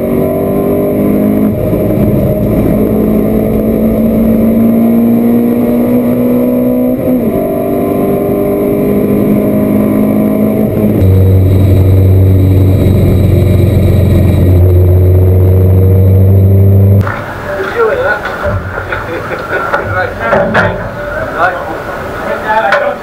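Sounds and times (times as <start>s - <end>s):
race car engine running hard: 0.0s - 23.0s
heavy low drone: 0.4s - 6.6s, 10.6s - 17.1s.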